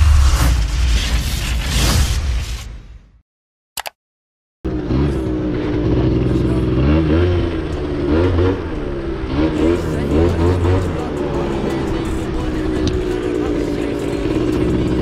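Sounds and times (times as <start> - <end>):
short click: 3.8 - 4.0
small two-stroke engine revving: 4.7 - 15.0.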